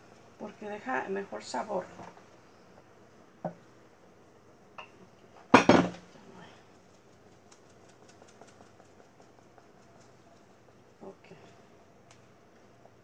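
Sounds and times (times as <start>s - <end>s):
kitchenware clatter: 5.5s - 6.0s
faint light ticks: 12.0s - 13.0s.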